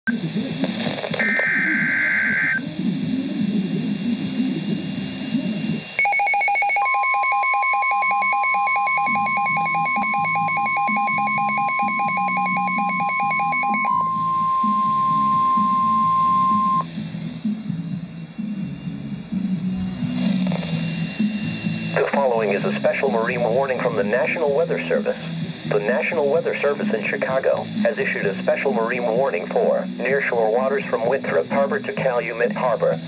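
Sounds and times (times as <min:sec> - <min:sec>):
steady warning alarm tone: 0:01.2 - 0:02.8, 0:03.8 - 0:33.0
pulsing electronic alarm: 0:01.2 - 0:32.8
digital data screech: 0:06.0 - 0:16.9, 0:19.8 - 0:32.1.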